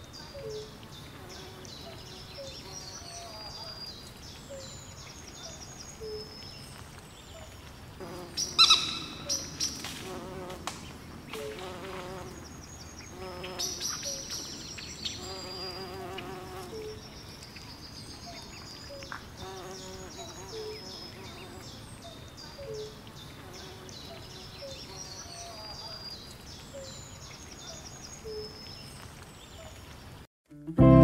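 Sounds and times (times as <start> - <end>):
small birds chirping: 0.0 - 30.3
insect buzzing: 8.0 - 10.8, 11.4 - 12.5, 13.1 - 14.4, 15.1 - 16.9, 19.4 - 21.7.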